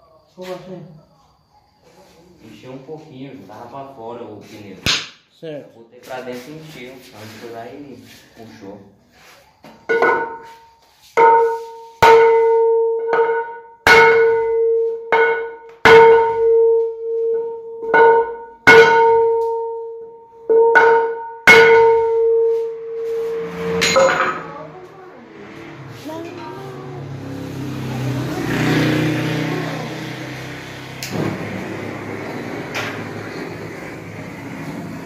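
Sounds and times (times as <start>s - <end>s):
hammer striking metal bar on wheel: 9.9s - 10.5s, 11.2s - 24.6s.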